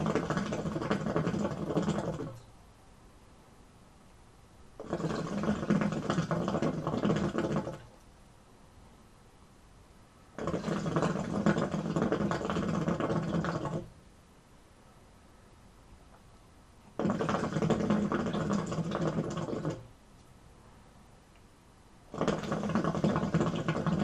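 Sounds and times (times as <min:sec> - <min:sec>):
hookah water bubbling: 0:00.0 - 0:02.5, 0:04.8 - 0:08.0, 0:10.4 - 0:13.9, 0:16.9 - 0:19.9, 0:22.1 - 0:24.0.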